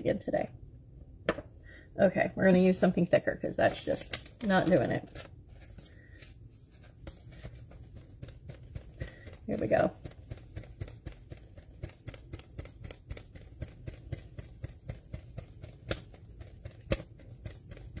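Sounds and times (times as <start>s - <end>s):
paper card flapping as fan: 3.8s - 18.0s.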